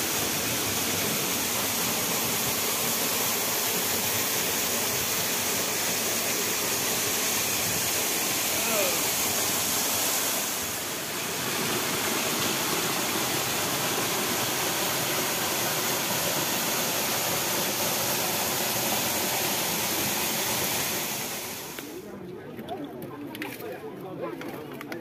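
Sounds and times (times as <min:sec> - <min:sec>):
waterfall pouring over rocks: 0:00.0 - 0:22.0.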